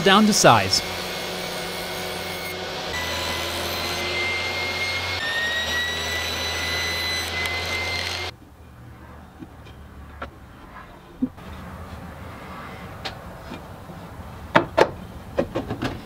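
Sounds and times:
table saw cutting plywood: 0:00.0 - 0:08.3.

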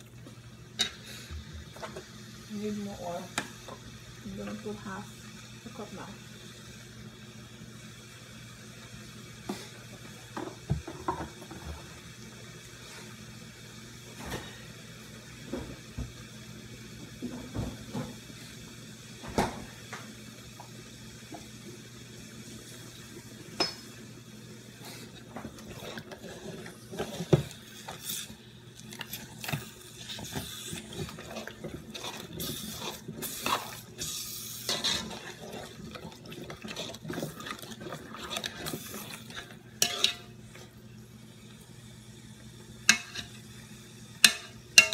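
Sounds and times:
stew bubbling in a pot: 0:00.0 - 0:44.9
popping and spitting stew: 0:19.9 - 0:41.6, 0:42.3 - 0:44.9
metal spoon scraping a pot: 0:30.0 - 0:40.3, 0:42.9 - 0:43.3.

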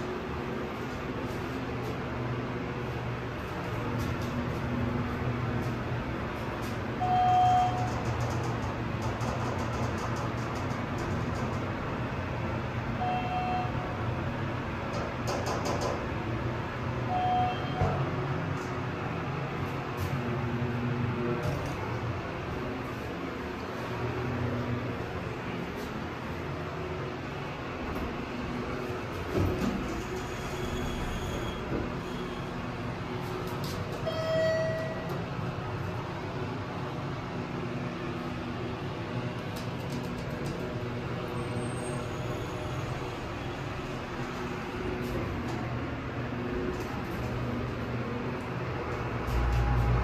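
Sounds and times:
elevator low hum: 0:00.0 - 0:50.0
short electronic beeps: 0:07.0 - 0:08.0, 0:13.0 - 0:13.8, 0:17.1 - 0:18.0, 0:34.0 - 0:35.1.

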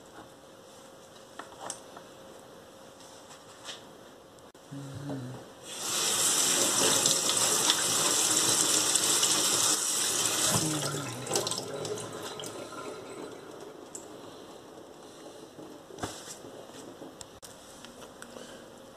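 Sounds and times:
tap water splashing into sink: 0:10.2 - 0:12.6.

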